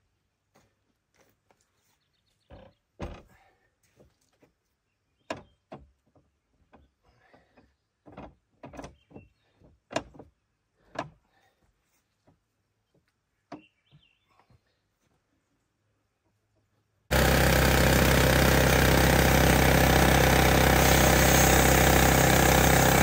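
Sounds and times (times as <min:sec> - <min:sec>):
log thumping on sawmill bed: 0:02.5 - 0:03.4, 0:17.1 - 0:23.0.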